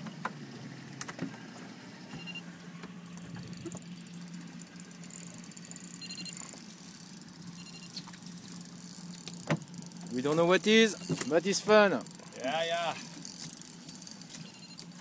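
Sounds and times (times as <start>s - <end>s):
boat engine idling: 1.7s - 15.0s
sharp knocks and clicks: 9.2s - 9.7s.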